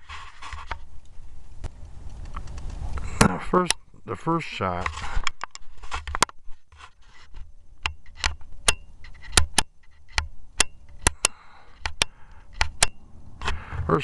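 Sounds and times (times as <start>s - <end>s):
sharp clicks and small taps: 7.8s - 13.0s.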